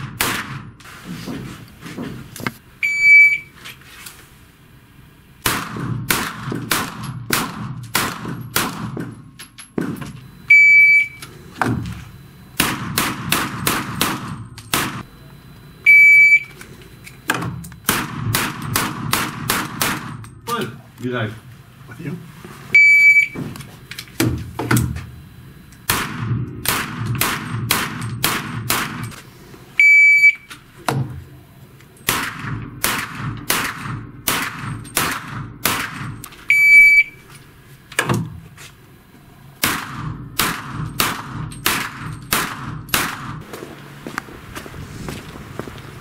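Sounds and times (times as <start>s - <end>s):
pistol rapid shots: 0.0s - 0.7s, 5.4s - 9.0s, 12.6s - 15.0s, 17.8s - 20.2s, 25.9s - 29.1s, 32.1s - 36.2s, 39.6s - 43.4s
short high electronic beep: 36.5s - 37.2s.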